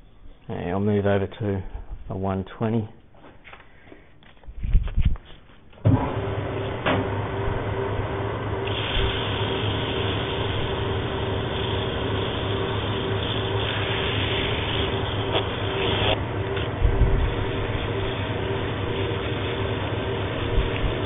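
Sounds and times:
wood lathe motor humming: 6.0s - 21.0s.

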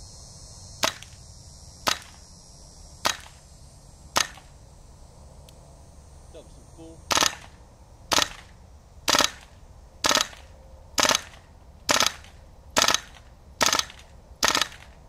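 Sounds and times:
airsoft gun shots: 0.8s - 1.2s, 1.8s - 2.2s, 3.0s - 3.4s, 4.2s - 4.5s, 7.1s - 15.0s
gun recoil clack: 4.2s - 4.4s, 7.1s - 8.5s, 9.1s - 15.0s.

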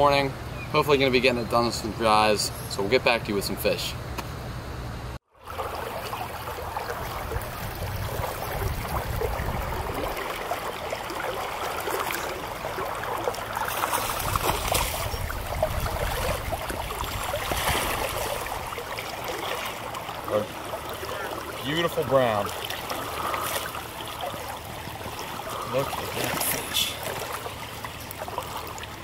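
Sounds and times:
creek water running: 5.3s - 29.0s
fish splashing in net: 5.4s - 21.6s, 22.4s - 29.0s.

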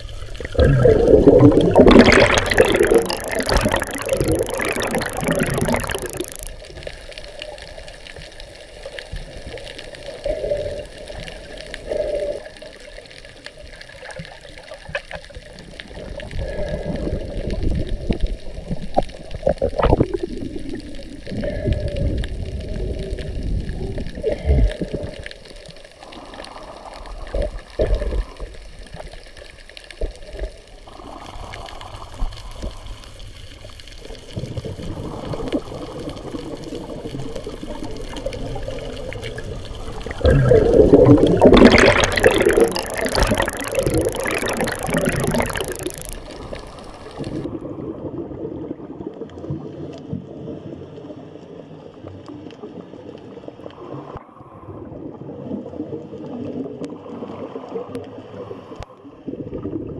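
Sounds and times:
low underwater rumbles: 0.0s - 6.6s, 34.2s - 48.2s
underwater bubbling and sloshing: 0.0s - 59.9s.

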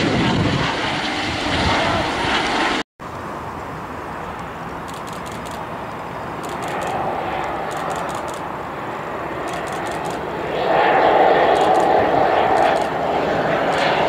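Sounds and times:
aircraft engines droning: 0.0s - 14.0s
faint rapid clicks: 4.4s - 5.7s, 6.4s - 8.5s, 9.5s - 10.2s, 11.5s - 11.9s.

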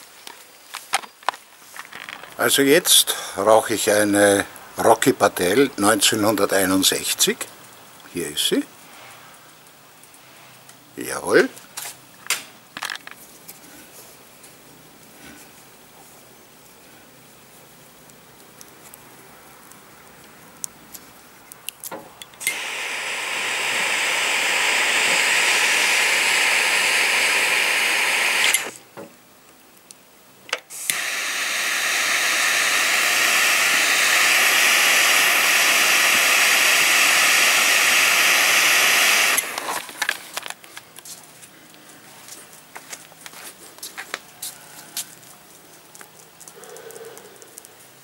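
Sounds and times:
lighter clicking: 22.3s - 28.8s, 30.8s - 39.8s
jet lighter hissing: 22.3s - 28.9s, 30.6s - 40.2s.

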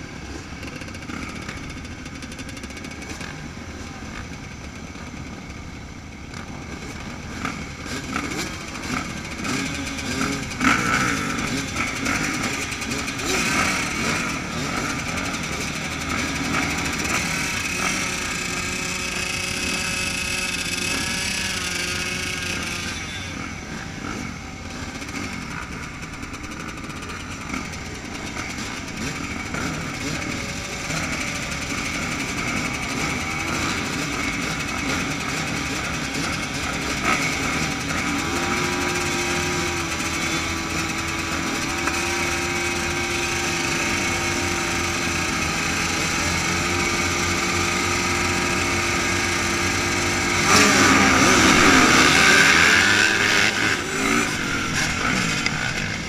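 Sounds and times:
engines revving: 0.0s - 56.0s
motocross bikes idling: 0.0s - 56.0s.

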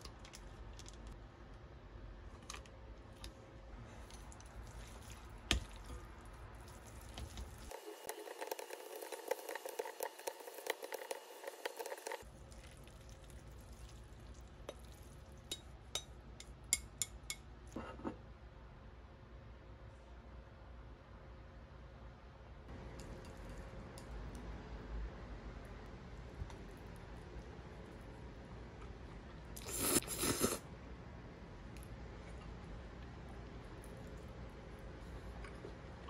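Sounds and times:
chopsticks stirring wet noodles: 3.8s - 16.1s.

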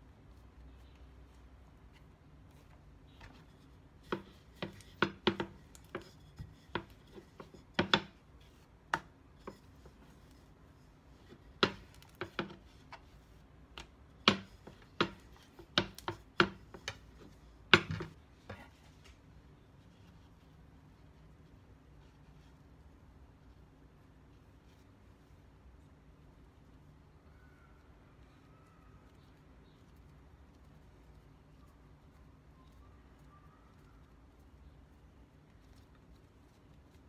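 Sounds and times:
rolling pin knocking on cutting board: 4.0s - 8.2s, 14.2s - 17.0s.

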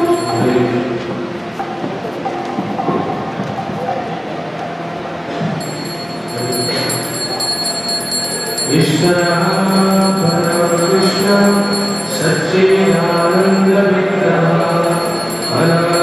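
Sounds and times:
hand bell ringing: 0.0s - 1.0s, 5.6s - 16.0s.

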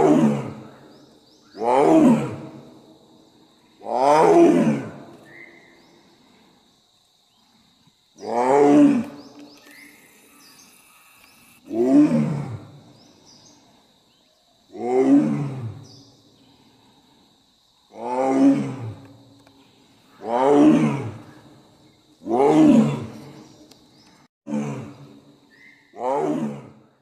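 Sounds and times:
tigress roaring: 11.6s - 12.7s, 18.0s - 19.0s, 20.2s - 21.2s, 22.3s - 23.4s, 26.0s - 26.8s.

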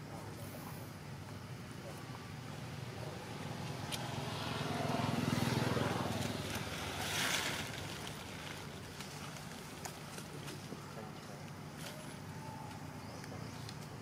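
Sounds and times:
vehicle engine passing: 2.4s - 8.6s.

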